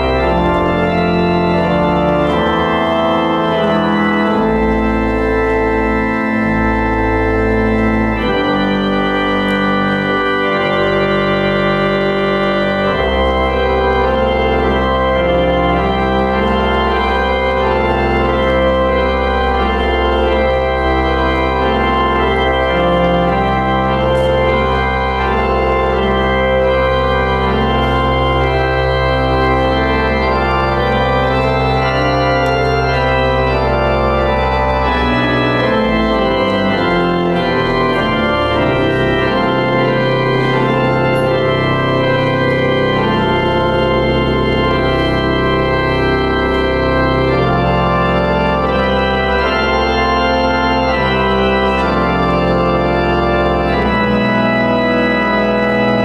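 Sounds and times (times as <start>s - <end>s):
church organ chords: 0.0s - 56.0s
low organ bass note: 0.0s - 56.0s.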